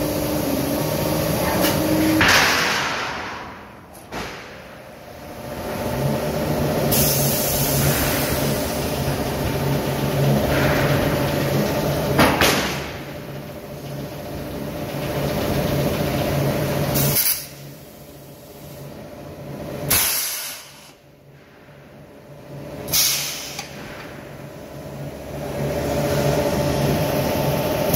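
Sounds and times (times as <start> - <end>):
steel plate on roller conveyor: 0.0 - 4.8, 5.6 - 17.7.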